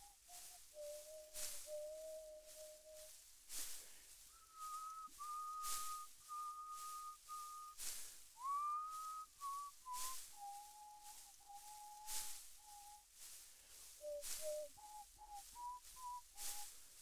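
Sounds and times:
person whistling slow tune: 0.0s - 17.0s
soft breathy whooshes: 2.4s - 4.8s, 6.8s - 8.4s, 12.0s - 14.7s.

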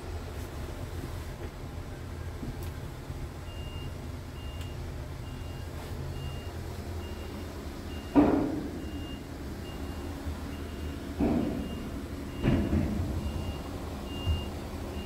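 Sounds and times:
diesel engine idling: 0.0s - 15.0s
loud thump: 12.4s - 13.4s.

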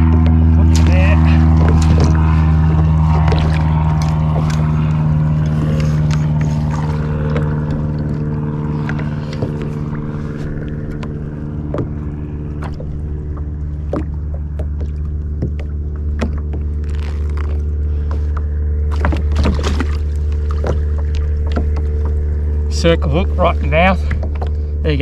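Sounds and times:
boat motor humming: 0.0s - 25.0s
light knocks and clicks: 8.8s - 16.7s.

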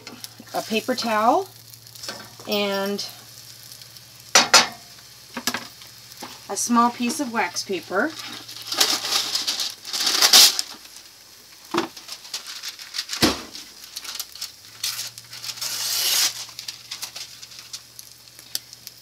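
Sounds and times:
egg sizzling in a frying pan: 0.0s - 19.0s
wax paper crinkling: 7.7s - 19.0s.

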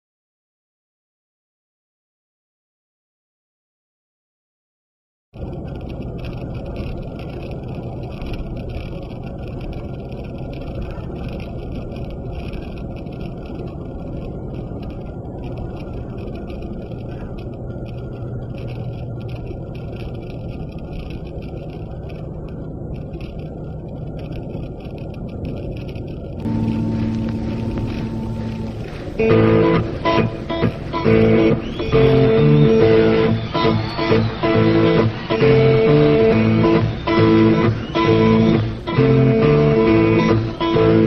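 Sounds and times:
car road rumble inside cabin: 5.4s - 41.0s
music: 26.5s - 41.0s.

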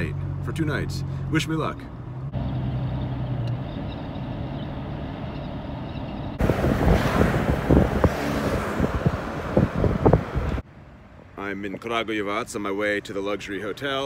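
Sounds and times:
car engine humming: 0.0s - 11.3s
wind buffeting microphone: 6.4s - 10.6s.

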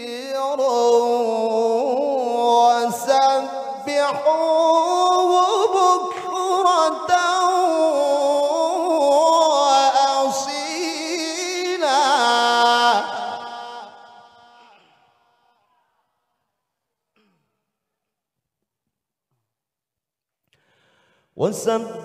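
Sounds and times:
man chanting into a microphone: 0.0s - 14.9s, 21.4s - 22.0s.

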